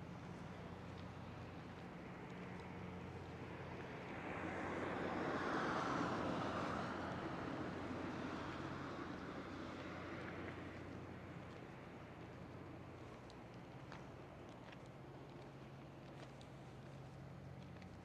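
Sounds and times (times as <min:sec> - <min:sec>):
low machinery hum: 0:00.0 - 0:05.3, 0:06.8 - 0:18.0.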